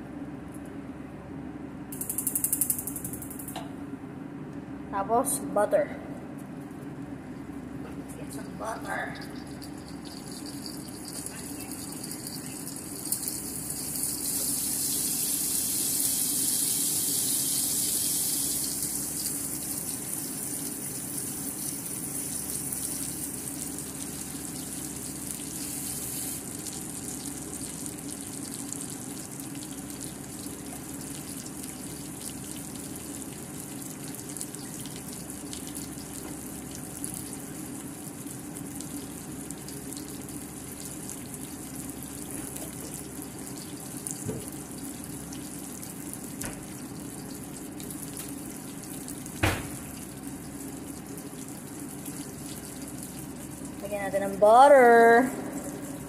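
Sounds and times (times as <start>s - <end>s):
steak sizzling in frying pan: 13.1s - 23.0s, 25.5s - 26.4s.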